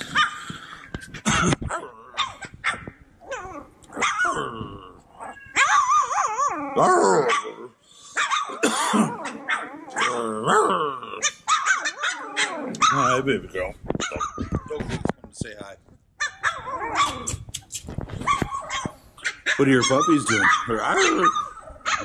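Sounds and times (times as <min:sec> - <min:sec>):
puppies yipping and barking: 0:01.1 - 0:04.4, 0:05.2 - 0:10.2, 0:11.2 - 0:13.2, 0:14.0 - 0:14.9, 0:16.2 - 0:17.5, 0:18.2 - 0:22.0.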